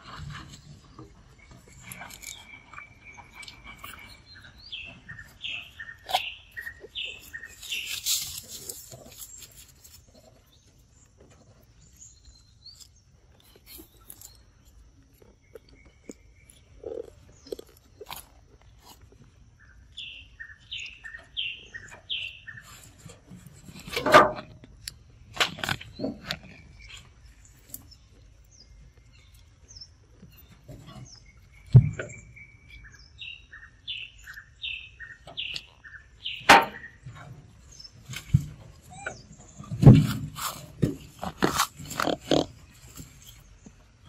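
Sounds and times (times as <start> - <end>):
bird chirping: 0.0 - 23.9, 25.0 - 44.0
monkeys biting into fruit: 0.2 - 10.5, 11.9 - 19.2, 39.7 - 43.8.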